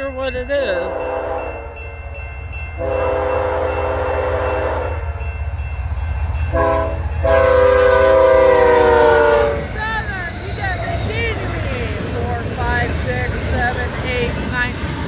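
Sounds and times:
engine and rail rumble: 0:00.0 - 0:15.0
locomotive horn blasts: 0:00.9 - 0:01.7, 0:02.8 - 0:05.1, 0:06.5 - 0:10.9.

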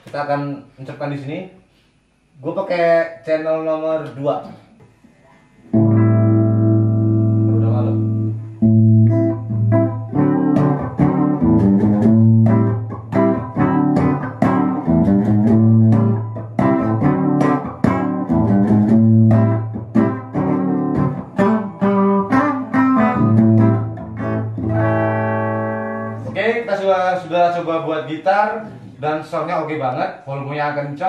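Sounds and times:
electric guitar notes and chords: 0:05.7 - 0:26.6.

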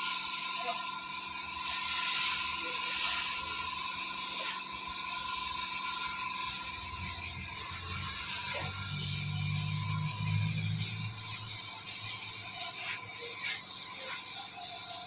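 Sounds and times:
paint spray gun hissing: 0:00.0 - 0:15.0.

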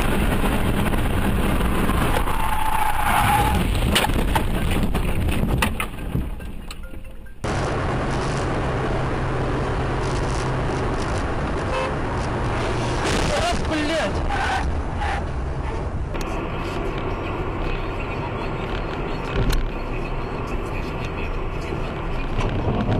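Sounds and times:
car engine and road noise: 0:00.0 - 0:22.9
tyre squeal: 0:02.1 - 0:03.7.

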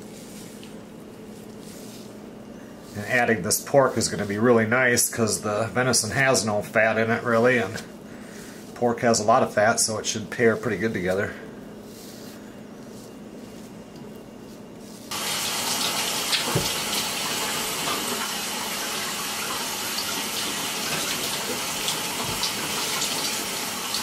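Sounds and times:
water running into sink: 0:15.1 - 0:24.0.

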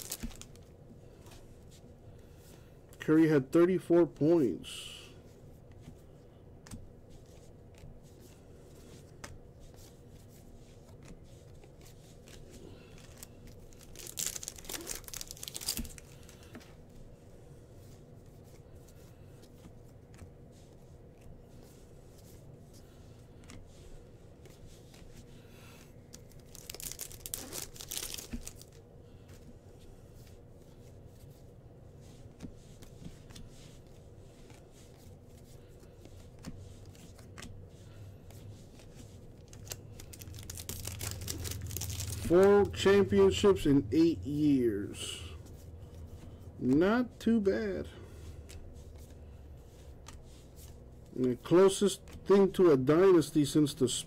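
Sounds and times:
wrapper tearing and crinkling: 0:00.0 - 0:00.6, 0:13.0 - 0:16.4, 0:26.1 - 0:28.8, 0:39.4 - 0:42.8
faint steady hum: 0:00.0 - 0:54.0
handling cards with light clicks: 0:05.6 - 0:17.0, 0:17.8 - 0:29.6, 0:32.0 - 0:43.5, 0:48.2 - 0:52.7.

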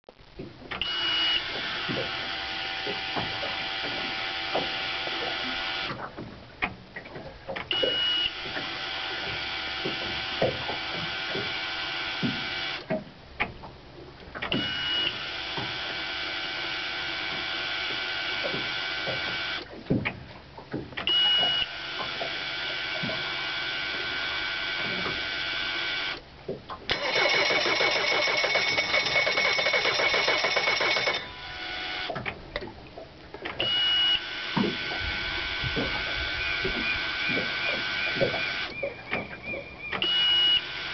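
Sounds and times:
outboard motor running: 0:00.4 - 0:40.9
short high beep: 0:40.0 - 0:40.6.

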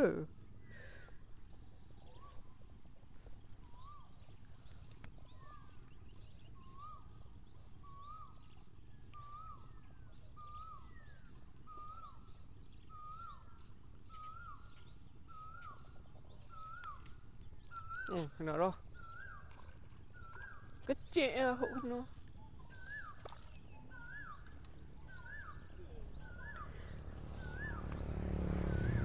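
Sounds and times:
faint outdoor rumble: 0:20.2 - 0:29.0
bird whistling rising-falling note: 0:23.9 - 0:29.0.

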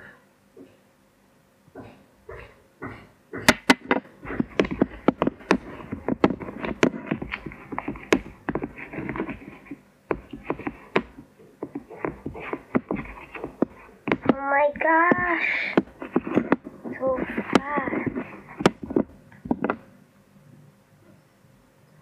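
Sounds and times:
spoon scraping plastic bowl: 0:04.2 - 0:19.1.

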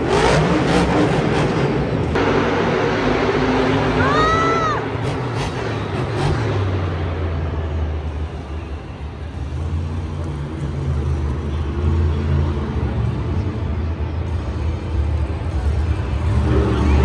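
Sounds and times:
vehicle engine running: 0:04.9 - 0:17.0.

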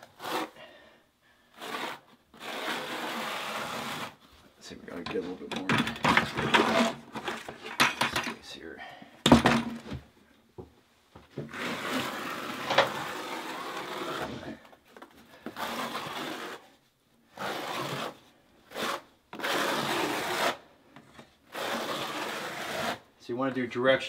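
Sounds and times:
trowel scraping mortar: 0:00.0 - 0:00.6, 0:01.6 - 0:04.2, 0:06.0 - 0:07.8, 0:11.5 - 0:14.6, 0:15.4 - 0:16.7, 0:17.4 - 0:20.6, 0:21.5 - 0:23.0.

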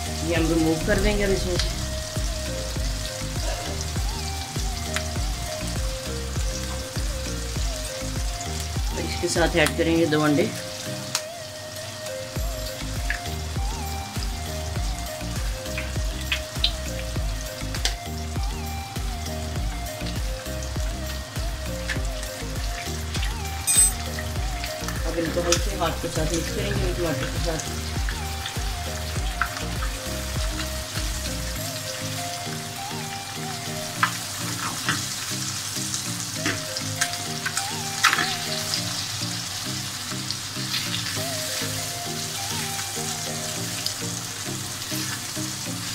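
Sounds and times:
music with steady beat: 0:00.0 - 0:09.7, 0:10.8 - 0:38.8
eggs and tomatoes sizzling: 0:00.0 - 0:45.9
sauce crackling in a pan: 0:00.0 - 0:45.9.

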